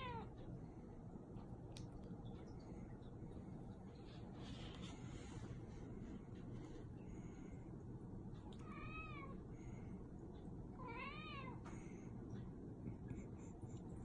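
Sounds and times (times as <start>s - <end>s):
cat meowing: 0.0s - 0.3s.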